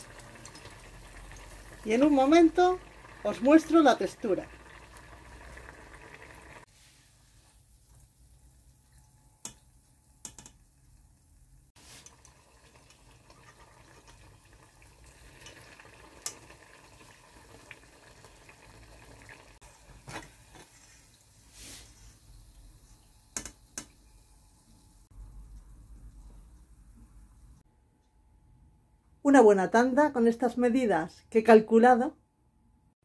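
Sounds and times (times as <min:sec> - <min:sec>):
hot oil bubbling: 0:00.0 - 0:26.0.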